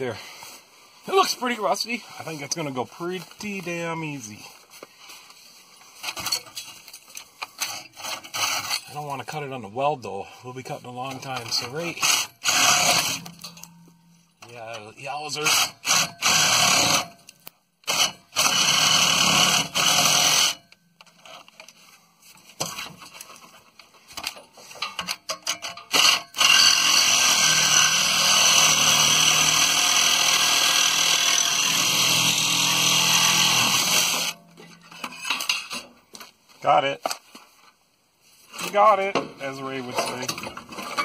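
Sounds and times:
reciprocating saw cutting metal pipe: 7.6s - 8.9s, 11.5s - 13.7s, 15.4s - 17.2s, 17.8s - 20.7s, 25.5s - 34.4s.

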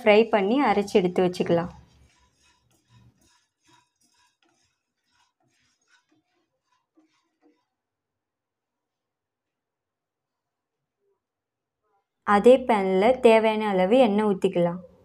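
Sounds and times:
spatula scraping in pan: 0.0s - 7.8s.

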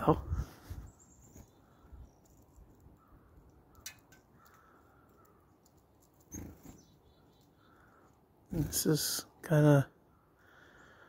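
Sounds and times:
faint clicks: 2.2s - 6.3s.

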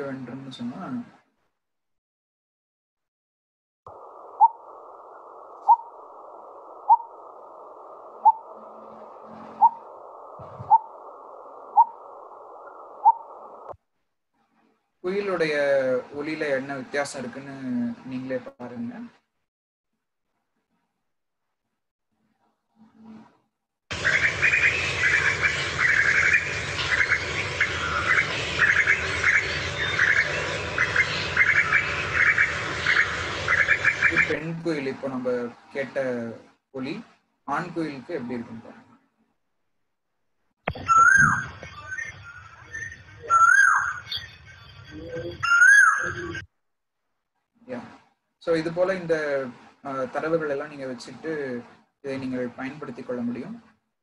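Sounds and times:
bird bubbling call: 4.3s - 6.0s, 6.8s - 7.2s, 8.2s - 8.6s, 9.3s - 11.0s, 11.7s - 13.7s, 40.7s - 44.3s.

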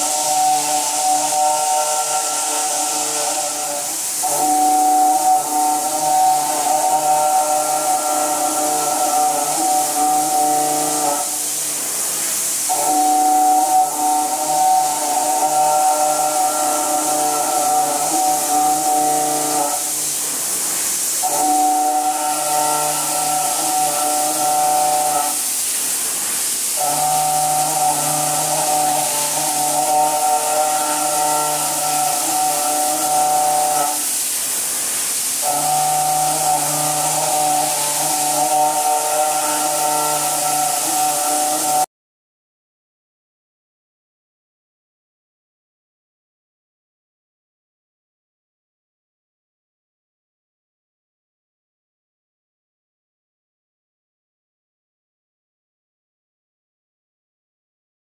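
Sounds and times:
milling machine whine: 0.0s - 41.9s.

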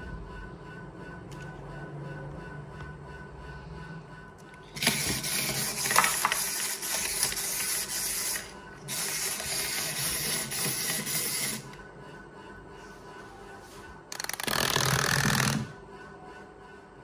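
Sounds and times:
toy doll mechanism whirring and clicking: 4.8s - 11.7s, 14.1s - 15.7s.

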